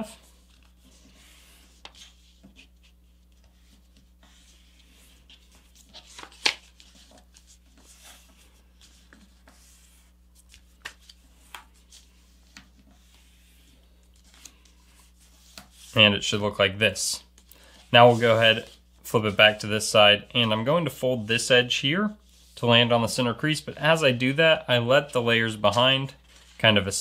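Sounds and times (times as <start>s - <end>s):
paper being folded and creased: 0.2s - 16.0s.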